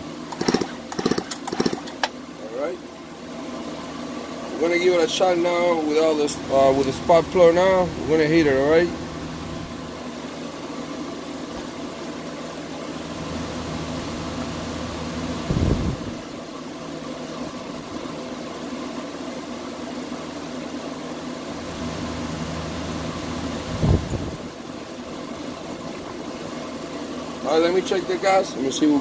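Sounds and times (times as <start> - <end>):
steady background hum: 0.0 - 29.0
chainsaw recoil starter whirr: 0.3 - 2.2.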